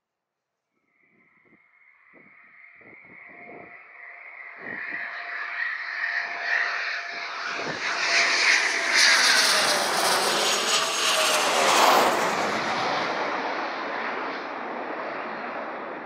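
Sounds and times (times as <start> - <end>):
jet whine falling in pitch: 0.9 - 13.4
jet engines roaring overhead: 2.2 - 16.0.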